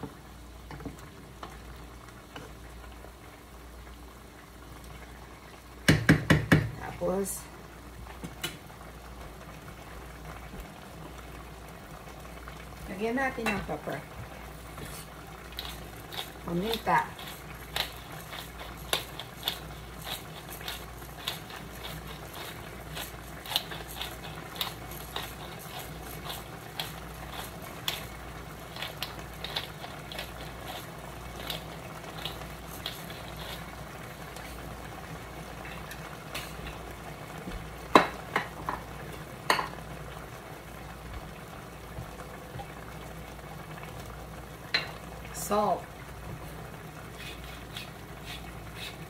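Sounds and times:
stew simmering sizzle: 0.0s - 49.0s
spoon knocking a pot: 5.9s - 6.8s, 39.5s - 39.8s
spoon scraping a pot: 14.8s - 34.6s, 47.1s - 49.0s.

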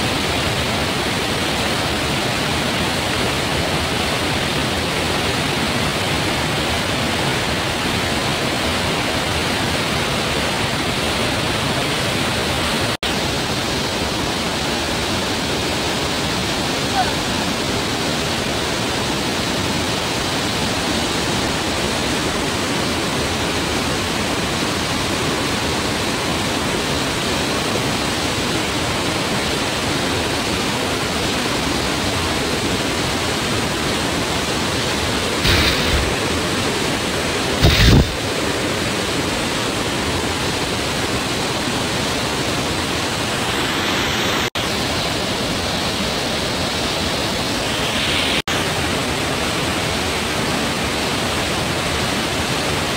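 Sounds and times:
waterfall pouring over rocks: 0.0s - 52.9s
brief thumps: 35.4s - 36.2s, 37.6s - 38.2s.

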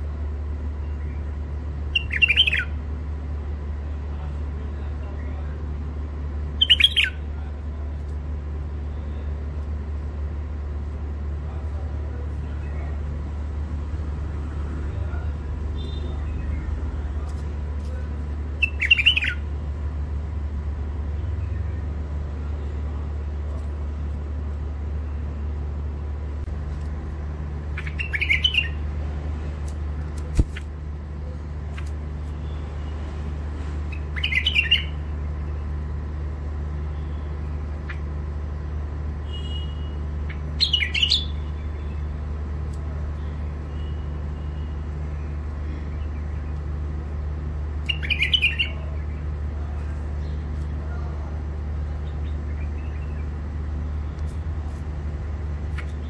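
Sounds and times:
steady low hum: 0.0s - 56.0s
bird call notes: 1.9s - 2.8s, 6.6s - 7.2s, 27.8s - 28.8s, 33.9s - 35.0s, 39.3s - 42.0s, 47.9s - 49.1s.

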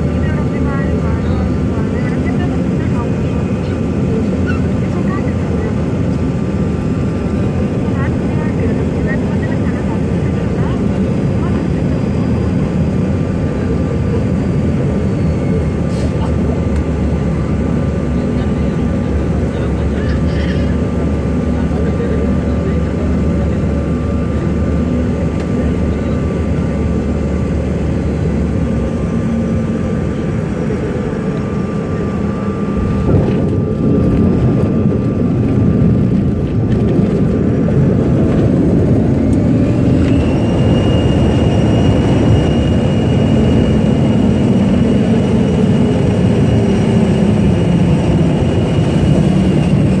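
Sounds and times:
jet engine roar and airflow: 0.0s - 50.0s
jet engine whine rising: 0.0s - 50.0s.

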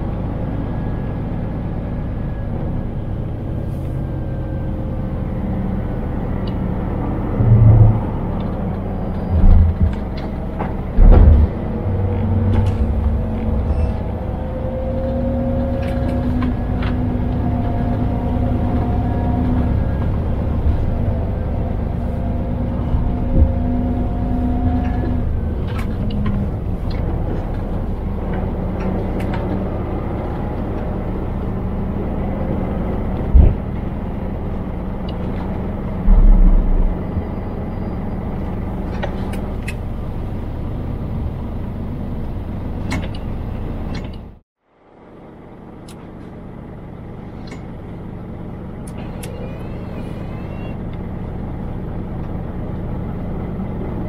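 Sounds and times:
diesel truck engine drone: 0.0s - 54.0s
road and tyre noise: 0.0s - 54.0s
low thumps: 7.2s - 14.4s, 35.2s - 38.8s.

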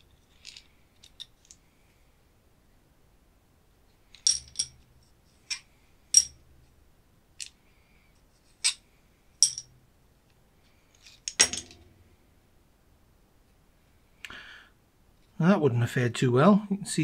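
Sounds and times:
switch parts clicking and clinking: 4.1s - 4.8s, 9.4s - 9.7s, 11.0s - 11.9s.

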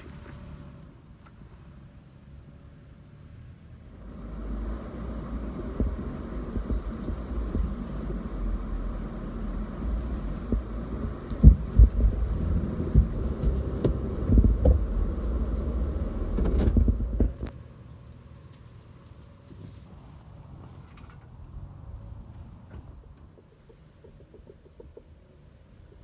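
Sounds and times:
engine rumbling under load: 0.0s - 26.0s
knocks and thumps from suspension: 10.4s - 15.3s, 16.3s - 17.5s.

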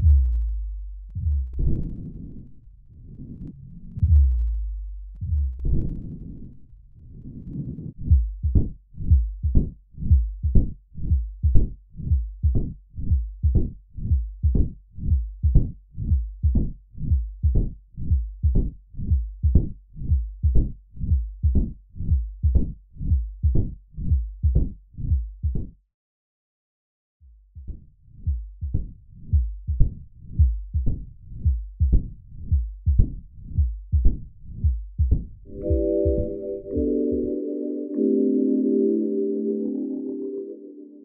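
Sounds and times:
heartbeat through a stethoscope: 0.0s - 2.2s, 3.9s - 6.2s, 7.9s - 25.8s, 27.4s - 37.3s.

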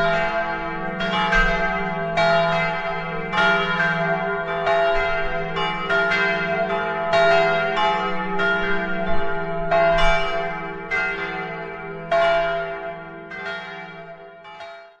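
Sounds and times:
church bells ringing: 0.0s - 15.0s.

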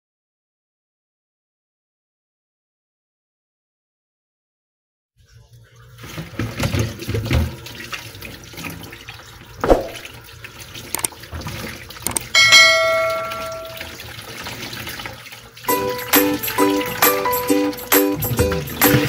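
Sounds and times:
tap water splashing into basin: 5.8s - 19.0s
bright bell ding: 12.4s - 13.9s
music: 15.7s - 19.0s.

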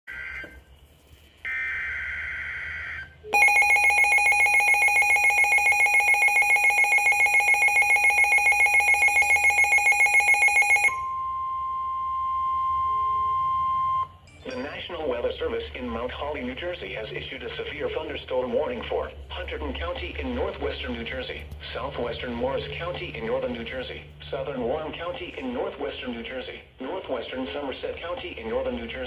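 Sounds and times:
steady warning alarm tone: 1.4s - 14.1s
rapidly pulsing alarm beeps: 1.5s - 11.4s.

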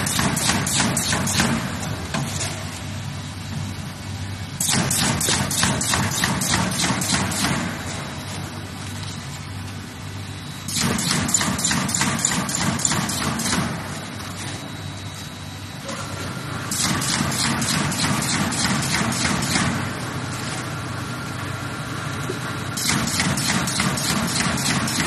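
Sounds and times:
machine rapid clatter: 0.0s - 2.6s, 4.6s - 8.0s, 10.7s - 14.0s, 16.6s - 20.7s, 22.7s - 25.0s.

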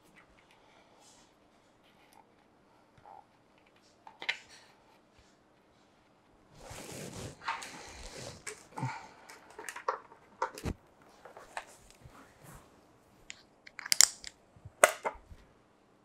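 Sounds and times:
rustling: 5.8s - 13.4s
chin strap clicks: 13.3s - 15.2s.

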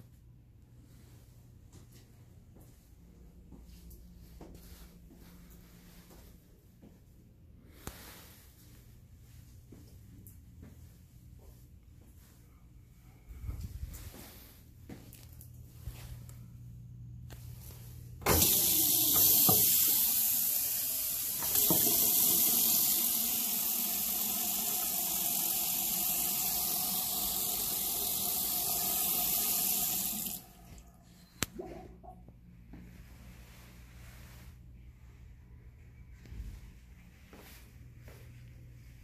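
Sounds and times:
faucet running into sink: 18.3s - 30.8s.

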